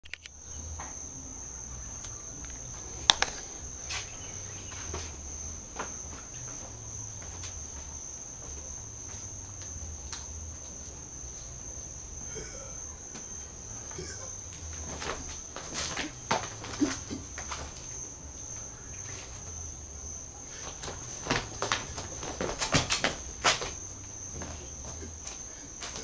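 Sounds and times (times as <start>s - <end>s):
sharp click: 0.0s - 0.4s
crickets trilling: 0.0s - 26.0s.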